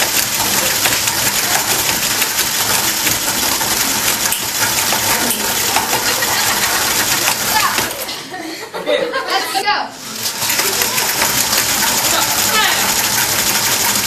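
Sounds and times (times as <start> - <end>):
cordless drill running: 10.0 - 14.0.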